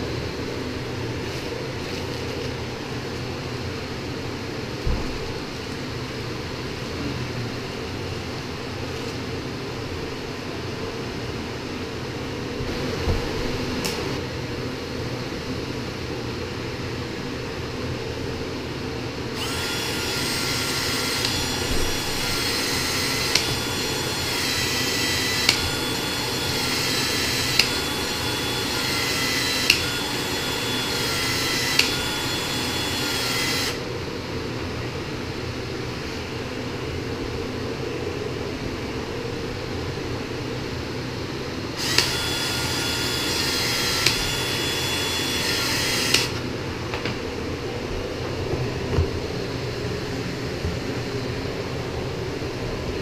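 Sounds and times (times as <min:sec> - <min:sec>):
drill clicking: 0:19.4 - 0:33.8, 0:41.8 - 0:46.4
cordless drill motor whine: 0:19.4 - 0:33.9, 0:41.8 - 0:46.5.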